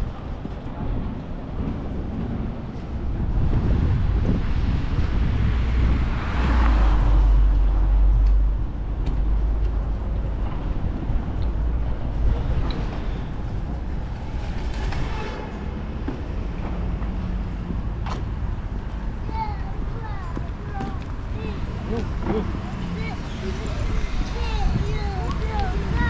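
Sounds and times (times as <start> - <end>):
heavy low rumble: 0.0 - 26.0
passing traffic: 0.0 - 26.0.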